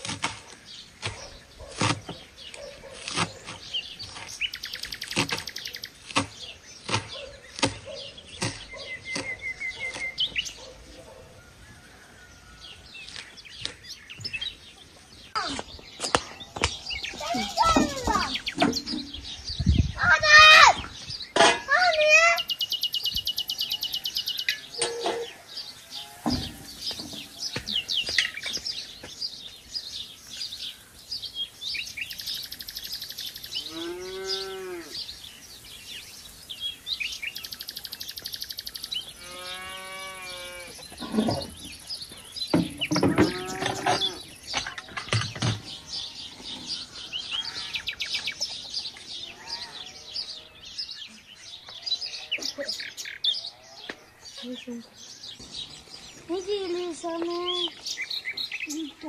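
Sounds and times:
birds chirping: 0.0 - 59.0
cow mooing: 33.6 - 35.0, 39.2 - 40.8.

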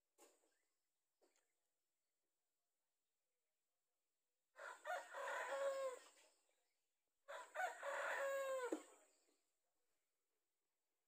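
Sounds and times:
rooster crowing: 4.6 - 6.1, 7.3 - 8.9.

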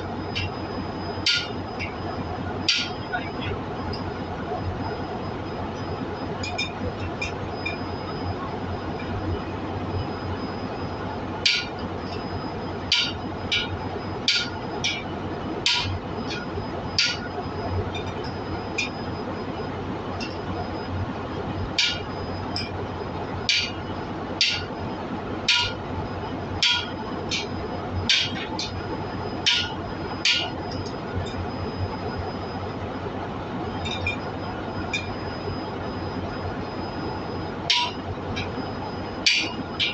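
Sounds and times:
workshop hum: 0.0 - 39.9
hammer striking steel: 1.3 - 1.9, 29.5 - 30.8, 39.3 - 39.9.

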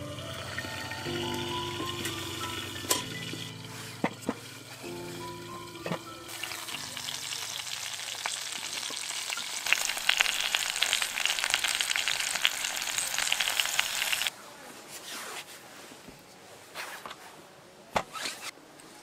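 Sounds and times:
meat sizzling on a grill: 0.4 - 14.3.

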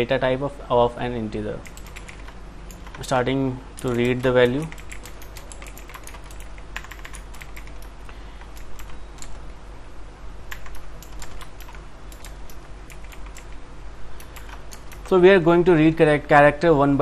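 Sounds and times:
faint low hum: 0.0 - 17.0
keyboard typing: 1.6 - 3.2, 3.8 - 9.6, 10.5 - 15.2.

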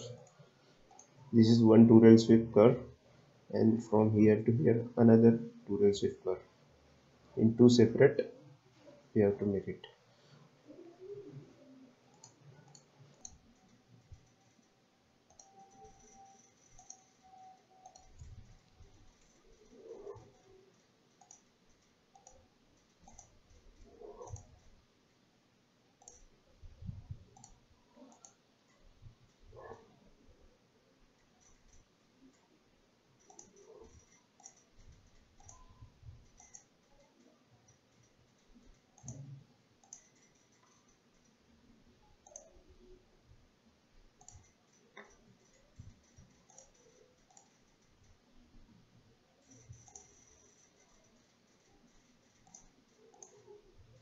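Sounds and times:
faint computer mouse clicks: 15.3 - 24.6, 27.1 - 29.8, 33.2 - 41.3, 42.2 - 42.6, 44.2 - 48.2, 49.4 - 54.0.

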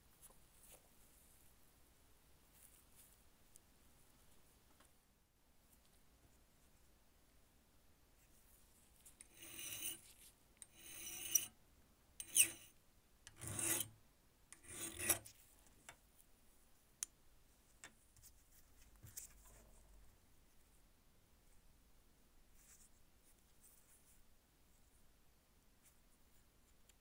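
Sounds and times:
hand file rasping on brass: 9.2 - 10.1, 10.7 - 11.5, 12.2 - 12.7, 13.3 - 13.9, 14.6 - 15.3.

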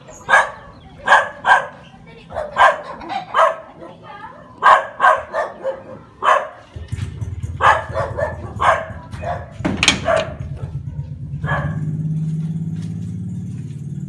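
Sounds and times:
dog barking: 0.2 - 6.8, 7.6 - 12.0.

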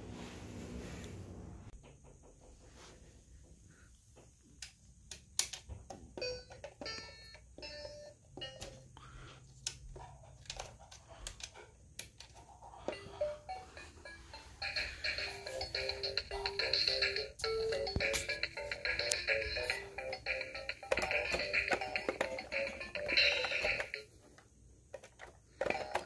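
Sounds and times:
plastic toy keys clicking: 17.0 - 24.1, 24.9 - 26.0.

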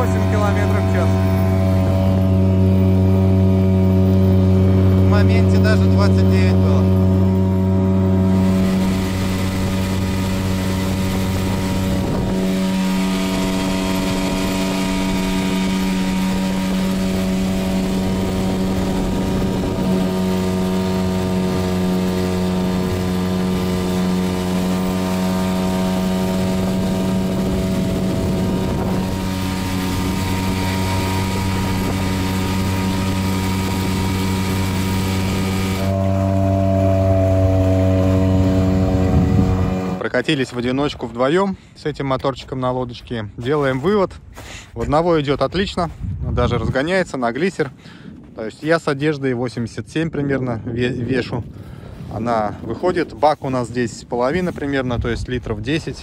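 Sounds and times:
water rushing: 0.0 - 41.0
outboard motor running: 0.0 - 41.8
wind: 0.0 - 56.0.

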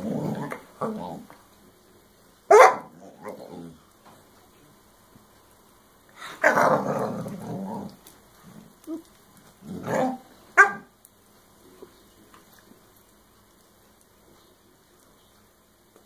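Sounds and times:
dog yelping: 2.5 - 2.9, 9.9 - 10.9
puppy barking and growling: 2.5 - 3.8, 6.3 - 10.9.

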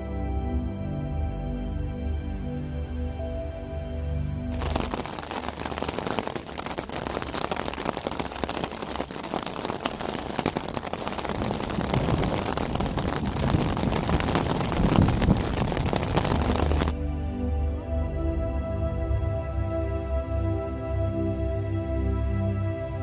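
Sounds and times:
heavy rain drumming on tent fabric: 4.5 - 17.0.

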